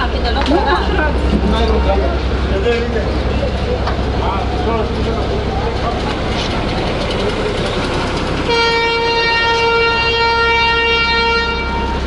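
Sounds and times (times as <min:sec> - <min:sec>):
train rumbling and rattling: 0:00.0 - 0:12.0
train horn blast: 0:08.4 - 0:12.0.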